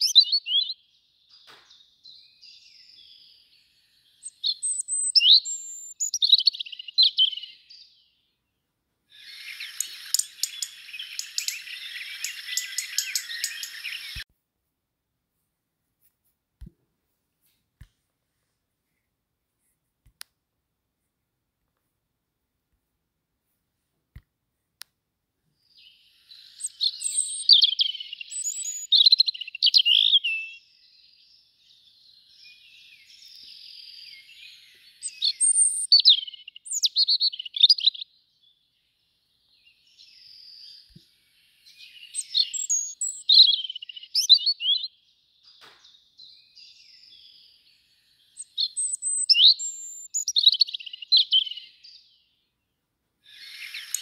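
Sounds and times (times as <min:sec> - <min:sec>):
robin singing: 0:00.0 - 0:14.3, 0:25.6 - 0:54.0.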